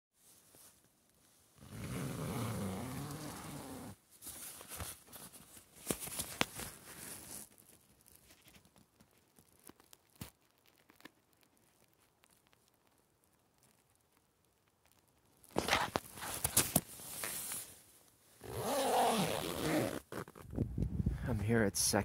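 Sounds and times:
tent fabric rustling: 0:00.2 - 0:08.7, 0:15.5 - 0:20.5
tent zipper pulled open: 0:01.6 - 0:04.0, 0:15.6 - 0:17.7, 0:18.4 - 0:20.6.

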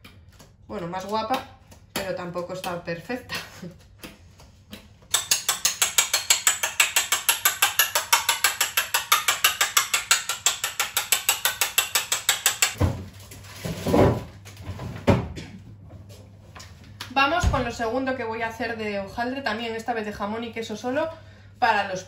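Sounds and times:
egg beaten in ceramic bowl: 0:01.0 - 0:12.8.

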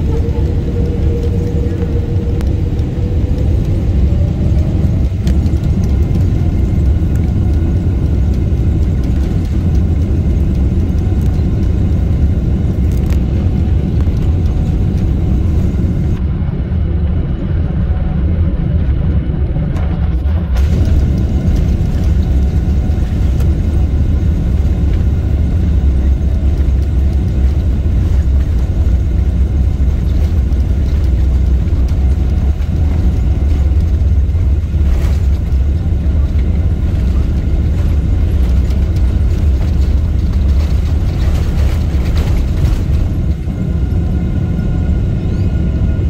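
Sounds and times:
faint whining tones: 0:00.0 - 0:16.6
jet engines at takeoff thrust: 0:00.0 - 0:46.0
wheels rumbling on runway: 0:00.0 - 0:46.0.

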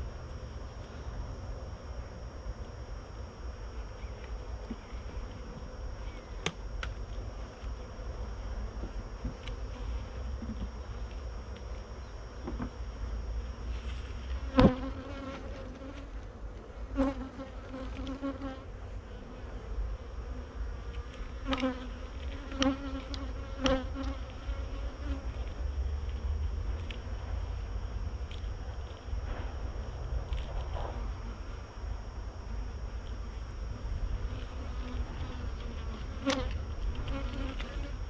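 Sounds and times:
honeybees buzzing: 0:00.0 - 0:38.0
single bee buzzing close: 0:12.2 - 0:16.2, 0:16.8 - 0:25.7, 0:30.6 - 0:38.0.

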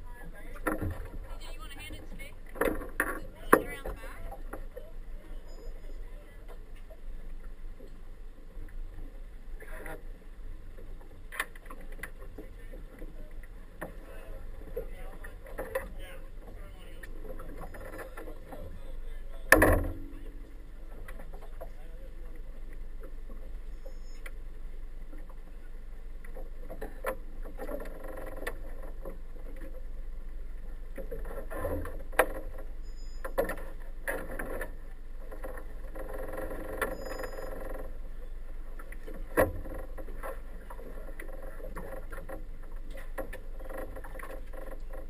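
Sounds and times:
low steady hum: 0:00.0 - 0:45.0
sharp knocks and thumps: 0:19.5 - 0:20.4.

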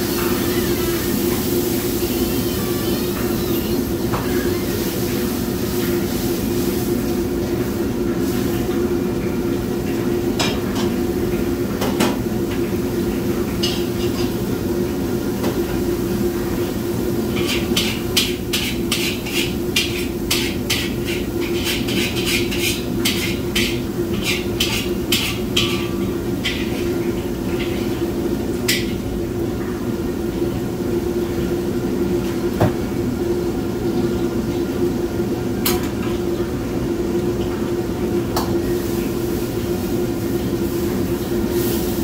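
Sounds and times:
ladle scraping wok: 0:17.1 - 0:29.1.

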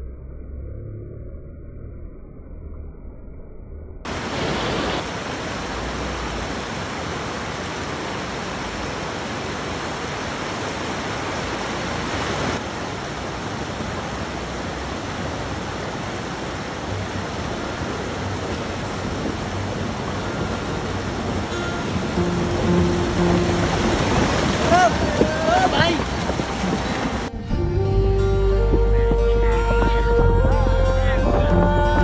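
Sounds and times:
river rushing over rocks: 0:04.1 - 0:27.4.

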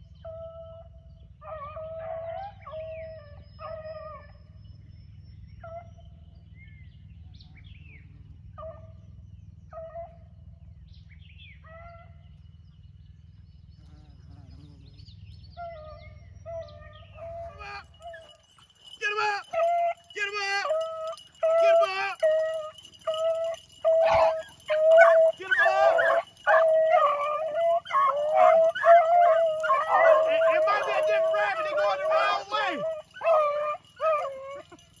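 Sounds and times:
low steady rumble: 0:00.0 - 0:35.0
hounds baying: 0:00.1 - 0:04.6, 0:08.5 - 0:10.5, 0:15.5 - 0:35.0.

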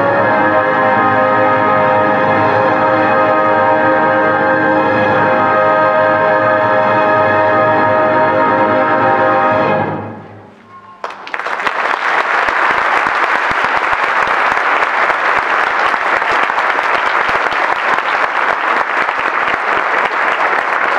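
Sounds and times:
audience applause: 0:10.9 - 0:20.9.

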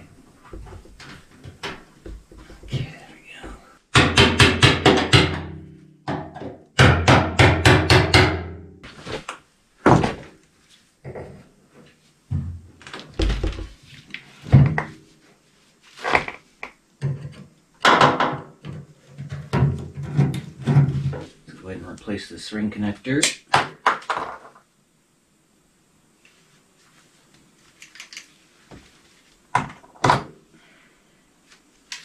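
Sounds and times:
knocks and clunks: 0:00.4 - 0:08.4, 0:16.1 - 0:21.3.

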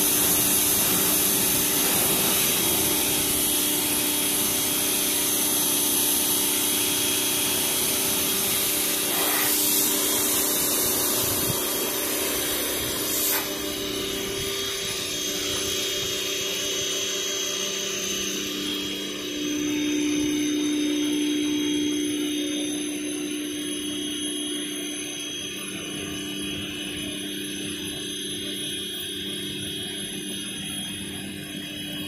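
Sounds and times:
water jet hissing: 0:00.0 - 0:15.4
pressure washer motor humming: 0:00.0 - 0:32.0.

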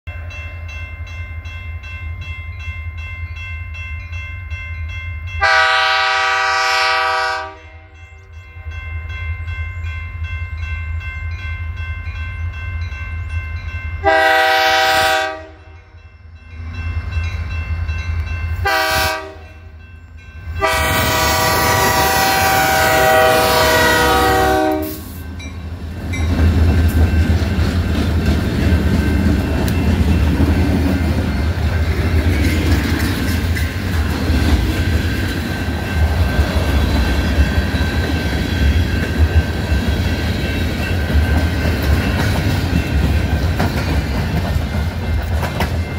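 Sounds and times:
locomotive horn blasts: 0:05.4 - 0:08.0, 0:14.0 - 0:15.9, 0:18.6 - 0:19.7, 0:20.6 - 0:25.2
locomotives rumbling past: 0:20.4 - 0:45.9.

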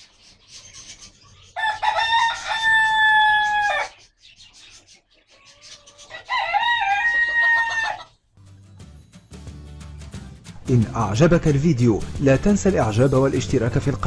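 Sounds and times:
rooster crowing: 0:01.6 - 0:04.0, 0:06.1 - 0:08.1.

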